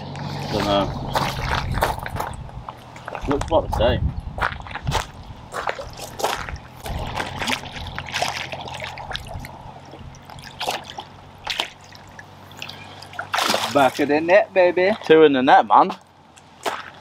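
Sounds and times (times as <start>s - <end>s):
water splashing and dripping: 5.6s - 17.0s.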